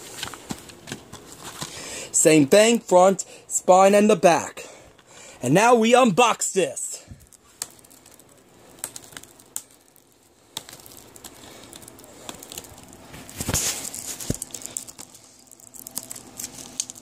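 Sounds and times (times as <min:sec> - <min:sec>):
plastic wrap crinkling: 0:07.0 - 0:17.0.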